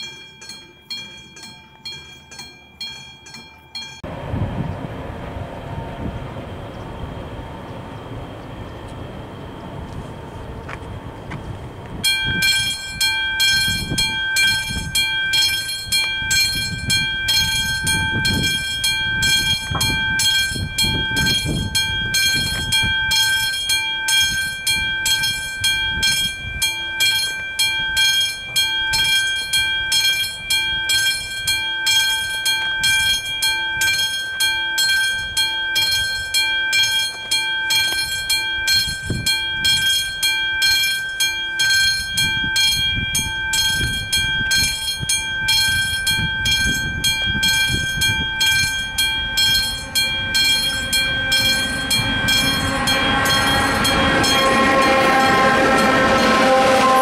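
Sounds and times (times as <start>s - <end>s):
level crossing bell ringing: 0.0s - 4.1s, 12.0s - 57.0s
low rumble: 4.0s - 12.7s.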